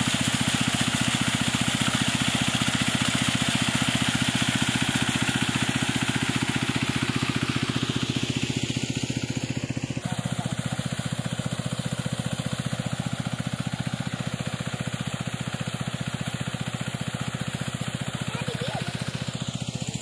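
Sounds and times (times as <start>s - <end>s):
water gushing from outlet: 0.0s - 20.0s
water pump engine running: 0.0s - 20.0s.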